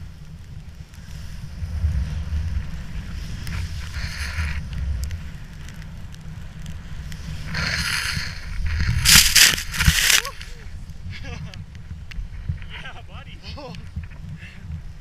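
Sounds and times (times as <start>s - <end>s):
wind rumble on microphone: 0.0s - 15.0s
snow spray hissing: 7.1s - 10.6s.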